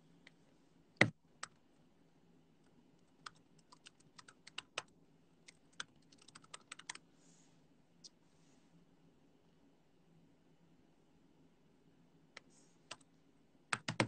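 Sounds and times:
keyboard typing clicks: 5.5 - 7.0, 13.7 - 14.0.

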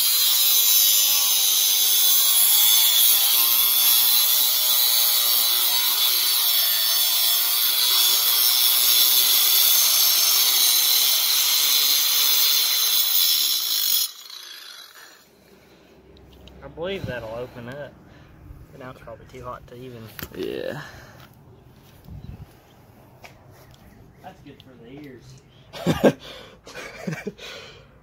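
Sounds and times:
angle grinder cutting metal: 0.0 - 15.3.

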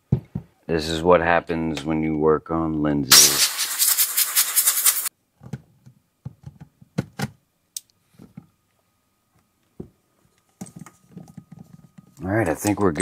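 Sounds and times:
compressed air hissing from blow gun: 3.1 - 5.1.

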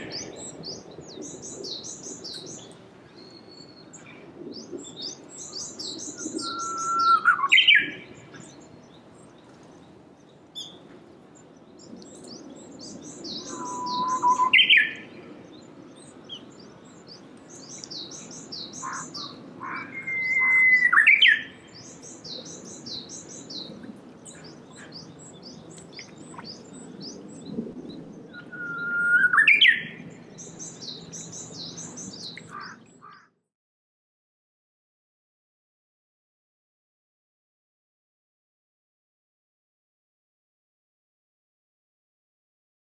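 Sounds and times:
bush warbler singing whistled song: 0.0 - 33.3.

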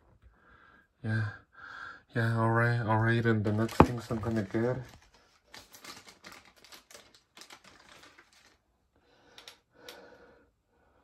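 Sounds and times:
plastic toy pieces clicking and rattling: 5.6 - 8.6.

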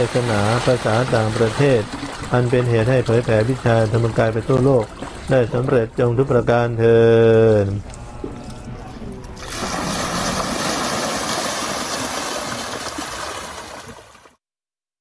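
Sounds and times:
pouring splashing water: 0.0 - 5.4, 9.4 - 14.4.

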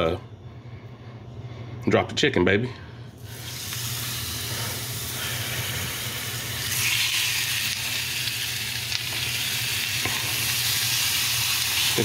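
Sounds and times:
chicken sizzling in oil: 3.3 - 12.0.

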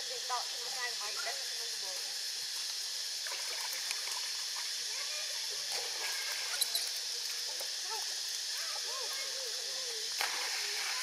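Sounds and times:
steady hiss: 0.0 - 11.0
water trickling and lapping: 0.2 - 11.0
faint wavering squeaks: 6.2 - 7.0.

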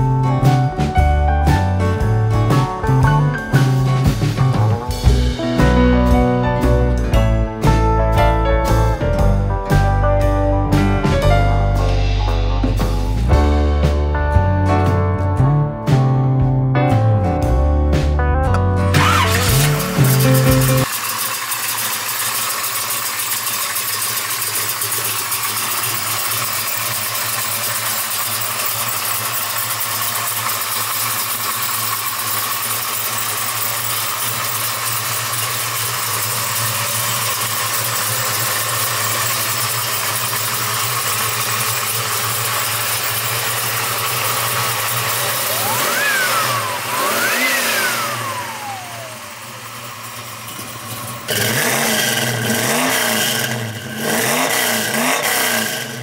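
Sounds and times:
car engine idling and revving: 0.0 - 56.0.

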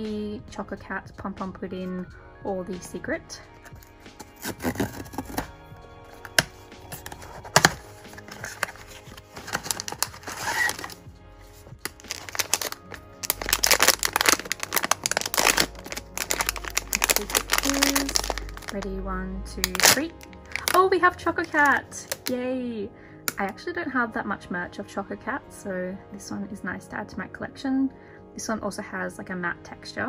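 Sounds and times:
soft background music: 0.0 - 30.0
plastic bag crinkling: 3.8 - 5.5, 6.2 - 18.8, 19.6 - 22.3.

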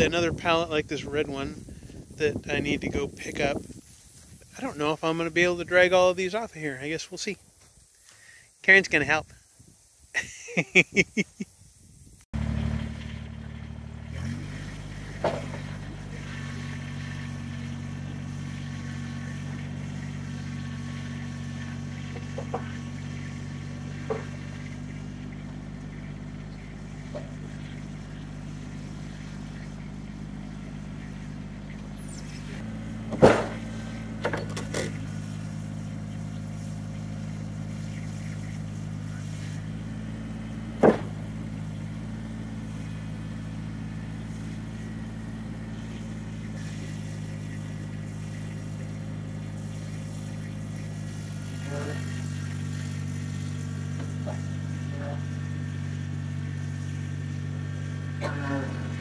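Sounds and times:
tractor diesel engine running: 0.0 - 9.2, 12.3 - 59.0
knocks: 40.8 - 41.2.

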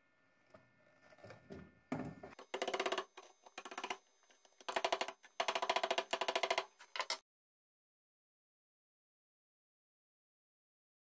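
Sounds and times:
ratchet tool clicking: 2.4 - 4.0, 4.6 - 7.2.

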